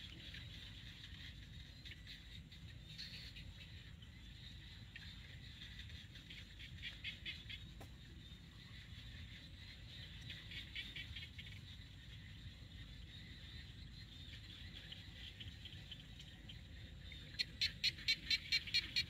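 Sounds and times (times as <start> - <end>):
low steady rumble: 0.0 - 19.0.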